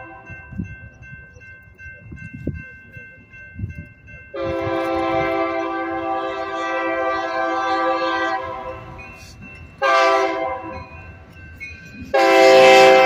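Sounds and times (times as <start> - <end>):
locomotive horn blasts: 4.3 - 9.0, 9.8 - 10.8, 12.1 - 13.0.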